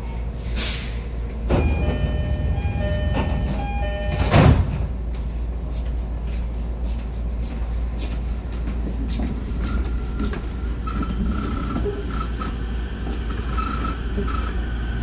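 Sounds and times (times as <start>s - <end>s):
low hum of train equipment: 0.0s - 15.0s
sliding doors closing with thud: 1.4s - 5.0s.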